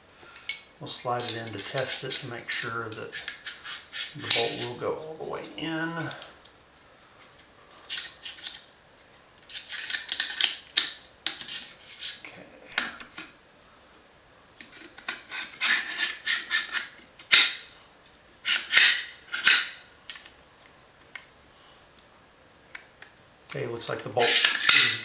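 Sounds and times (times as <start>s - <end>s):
metal scraping and rubbing: 0.9s - 6.2s, 11.4s - 12.3s, 15.0s - 17.0s, 24.2s - 25.0s.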